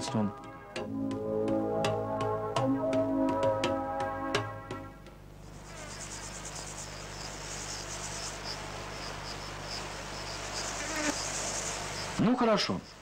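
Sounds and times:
film soundtrack hum and hiss: 0.0s - 13.0s
grasshopper chirping: 5.4s - 13.0s.

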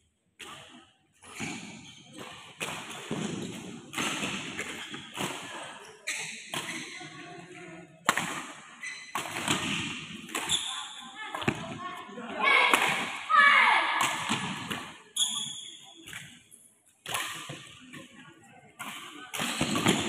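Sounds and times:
rackets hitting shuttlecock: 0.4s - 5.6s, 8.0s - 11.8s, 12.7s - 13.3s, 14.0s - 16.4s, 17.0s - 18.1s, 18.8s - 20.0s.

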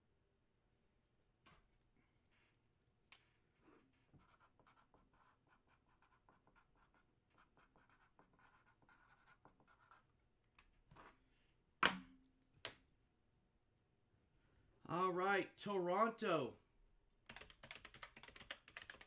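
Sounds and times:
pen scratching on paper: 3.8s - 10.1s.

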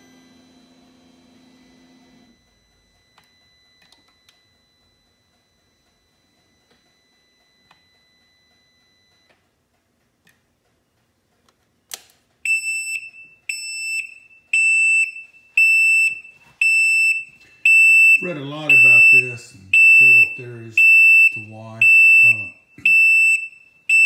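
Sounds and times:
warning beeper beeping: 12.5s - 24.0s.

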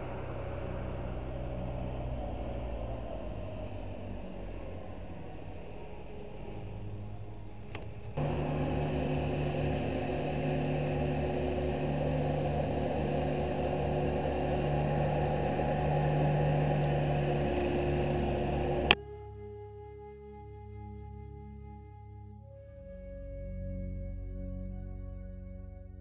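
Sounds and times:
motor humming: 0.0s - 19.0s.

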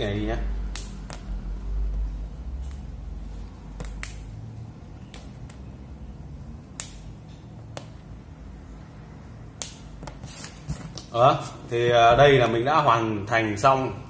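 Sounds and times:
rubber band snapping: 0.7s - 1.3s, 3.7s - 4.3s, 6.7s - 7.1s, 7.7s - 8.0s, 9.5s - 10.2s.

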